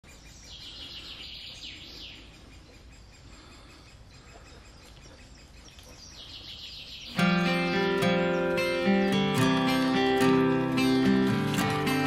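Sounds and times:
soft bird chirps: 0.0 - 11.3
songbird singing high notes: 6.1 - 12.0.

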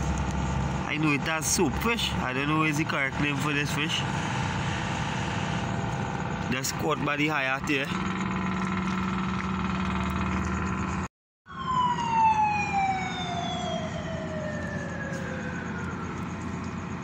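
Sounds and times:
road traffic hum: 0.0 - 17.0
siren wail falling in pitch: 11.5 - 16.6.

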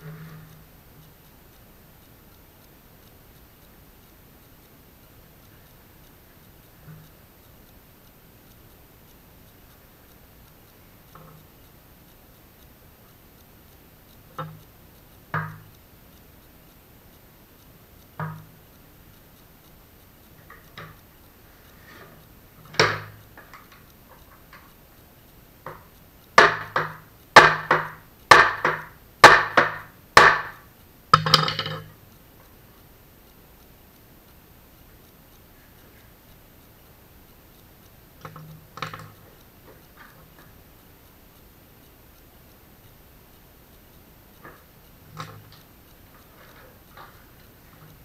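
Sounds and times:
hammer striking wood: 22.7 - 23.2, 26.4 - 31.8
knocks on wood: 26.4 - 30.6.

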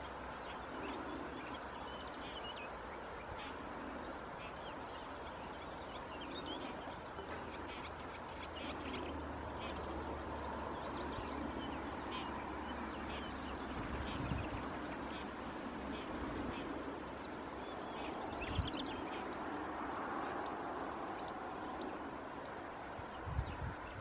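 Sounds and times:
small birds chirping: 0.0 - 24.0
steady background hiss: 0.0 - 24.0.

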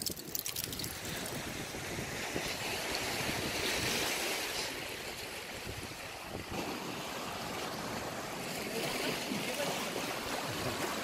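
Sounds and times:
wind rumbling on microphone: 0.0 - 8.5
surf on rocky shore: 0.0 - 11.0.

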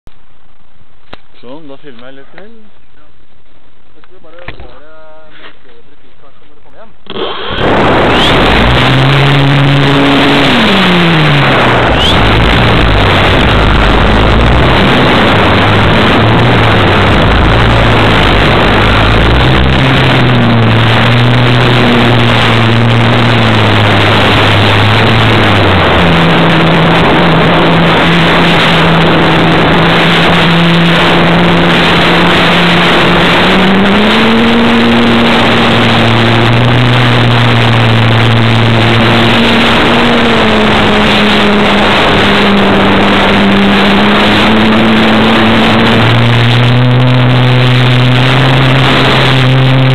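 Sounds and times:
model airplane motor and propeller: 6.5 - 49.9
wind rush: 7.1 - 49.9.

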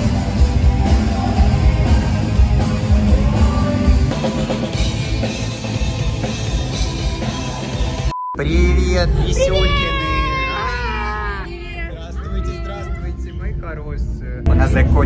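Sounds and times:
drum kit: 0.0 - 8.2
person singing: 0.7 - 4.3.

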